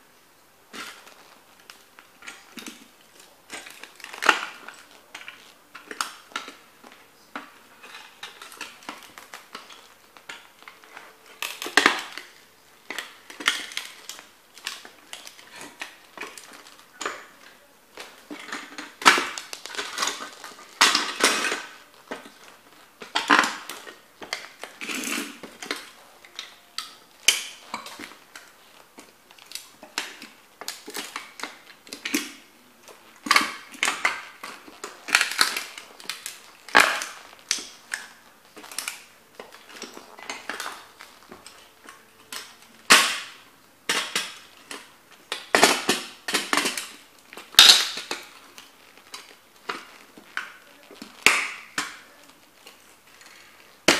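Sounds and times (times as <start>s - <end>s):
plastic crunching and cracking: 0.0s - 53.9s.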